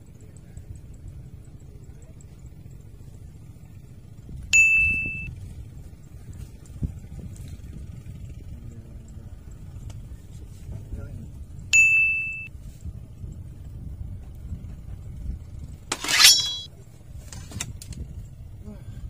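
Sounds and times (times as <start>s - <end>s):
bite bell ding: 4.6s - 5.3s, 11.8s - 12.5s
high metallic jingling: 4.6s - 5.3s, 11.8s - 12.5s, 15.9s - 16.7s
fishing rod swish: 15.9s - 16.7s.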